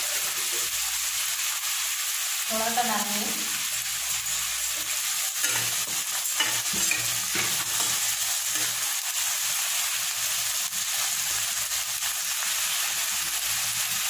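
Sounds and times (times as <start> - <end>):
onions sizzling in hot oil: 0.0 - 14.0
spatula scraping pan: 4.1 - 9.0.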